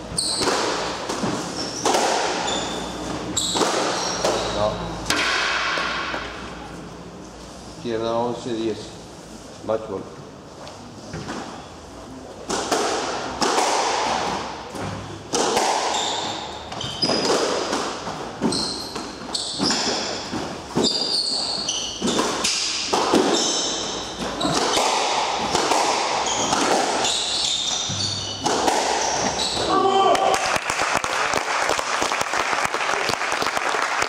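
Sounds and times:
shoes squeaking on wooden floor: 0:00.0 - 0:04.9, 0:15.8 - 0:29.9
ball smacking court walls: 0:00.2 - 0:02.8, 0:12.5 - 0:29.7
squash ball cracking off racquets: 0:00.2 - 0:02.8, 0:03.4 - 0:04.5, 0:05.1 - 0:06.3, 0:12.4 - 0:31.0.

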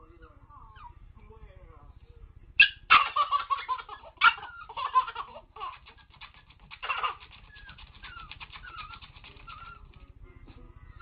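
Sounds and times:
baby laughing: 0:02.6 - 0:09.9.

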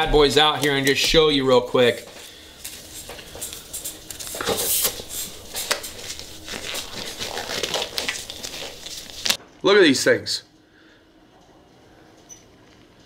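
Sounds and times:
glove crinkling and rustling: 0:00.0 - 0:09.4.

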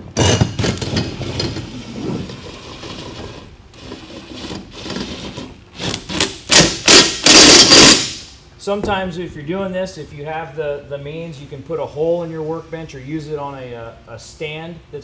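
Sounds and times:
impact driver bursts: 0:03.8 - 0:08.2.

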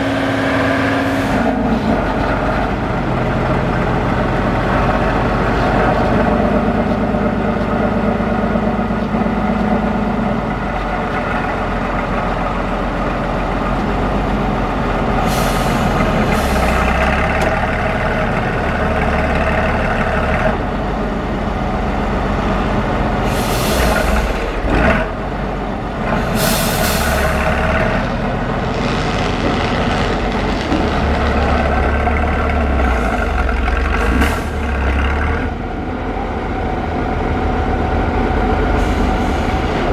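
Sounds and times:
truck diesel engine under load: 0:00.0 - 0:39.9
short air hisses: 0:23.2 - 0:24.3, 0:26.3 - 0:27.5.

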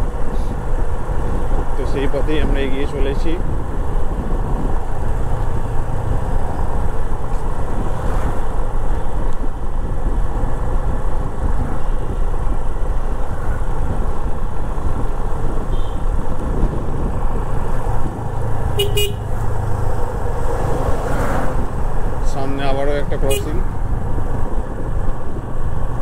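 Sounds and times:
wind rushing on microphone: 0:00.0 - 0:26.0
motorcycle engine running: 0:13.7 - 0:20.3.

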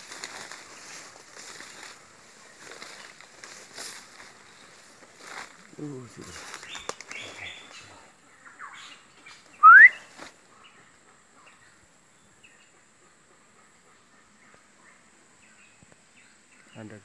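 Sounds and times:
faint bird chirps: 0:00.3 - 0:17.0
loud rising whistle: 0:09.6 - 0:10.0.

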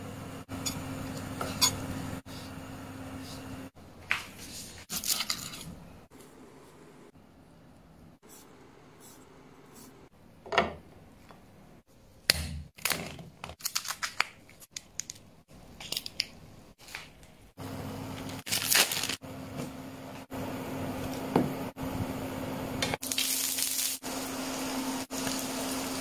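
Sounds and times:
plastic packet tearing and crinkling: 0:12.8 - 0:15.1, 0:18.4 - 0:19.2.

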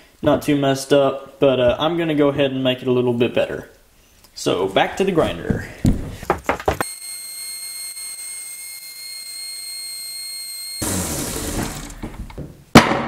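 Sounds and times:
belt grinder whine: 0:06.8 - 0:12.3.

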